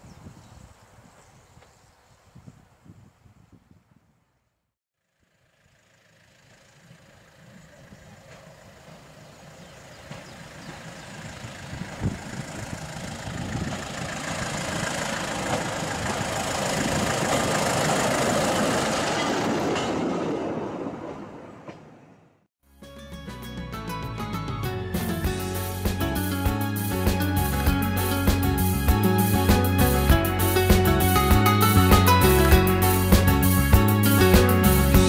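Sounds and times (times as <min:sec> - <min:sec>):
rail car passing: 0:06.8 - 0:22.4, 0:25.0 - 0:35.0.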